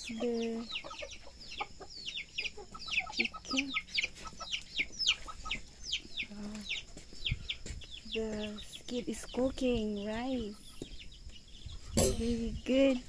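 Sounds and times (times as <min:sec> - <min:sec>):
chicken clucks: 0:00.0 - 0:12.8
chickens chirping: 0:00.0 - 0:13.0.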